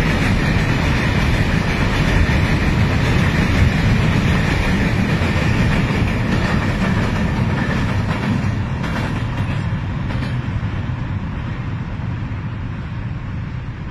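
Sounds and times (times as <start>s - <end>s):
wheel clatter on rails: 0.0s - 10.5s
train rumbling over bridge: 0.0s - 13.9s.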